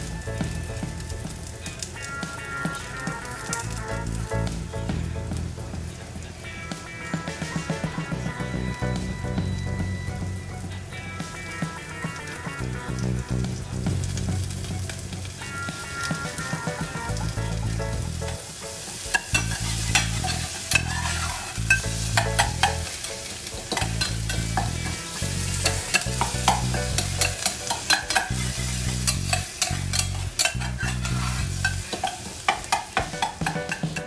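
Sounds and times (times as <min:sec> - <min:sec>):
vegetables sizzling in a saucepan: 0:00.0 - 0:34.0
metal spatula scraping a pan: 0:18.3 - 0:34.0.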